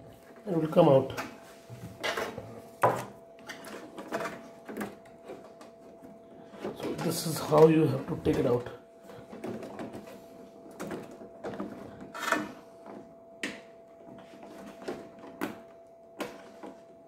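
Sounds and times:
plastic parts clicking and knocking: 9.2s - 17.0s.

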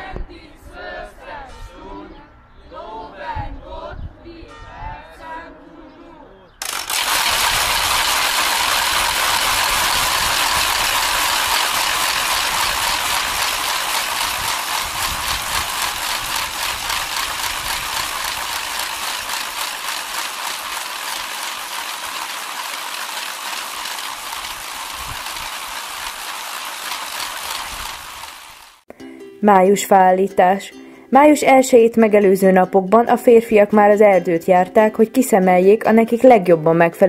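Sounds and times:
wooden ratchet rattles clattering: 6.6s - 28.8s.

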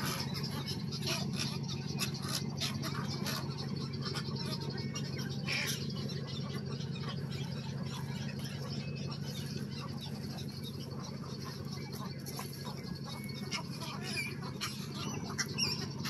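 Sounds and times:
egrets croaking and clicking: 0.0s - 16.0s
steady low rumble: 0.0s - 16.0s.

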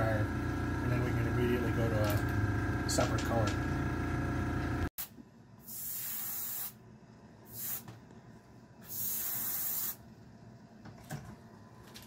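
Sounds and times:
airbrush spraying hiss: 5.6s - 6.8s, 7.5s - 7.9s, 8.8s - 10.0s.

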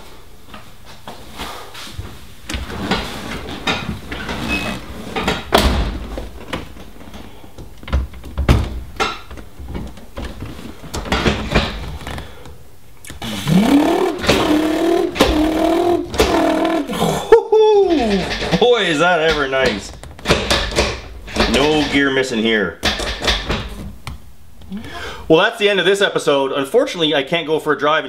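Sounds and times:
knocks and rustling in car: 2.6s - 12.3s, 18.1s - 22.0s, 22.8s - 24.2s
wavering pitched drone: 13.2s - 17.2s.

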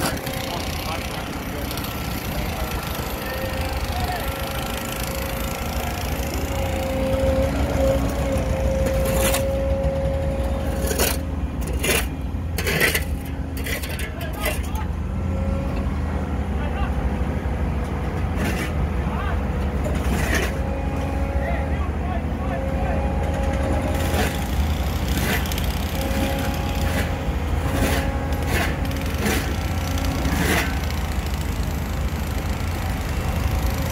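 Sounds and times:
excavator engine rumbling: 0.0s - 33.9s
concrete grating scrapes: 4.6s - 14.8s, 18.3s - 18.8s, 19.8s - 21.2s, 23.6s - 31.2s.

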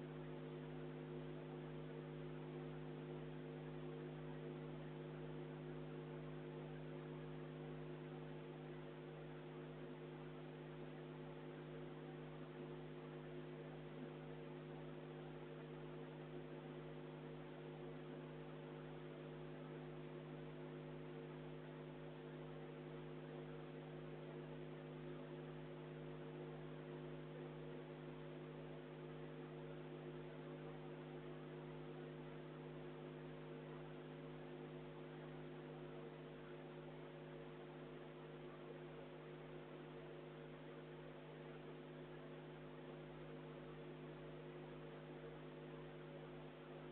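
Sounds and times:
electrical mains hum: 0.0s - 46.9s.

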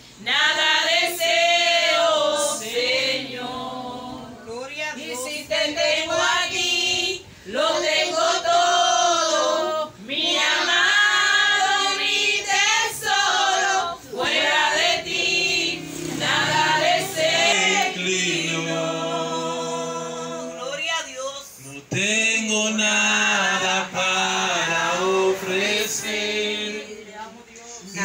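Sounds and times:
voices singing along: 0.2s - 28.0s
man singing: 21.7s - 25.8s.

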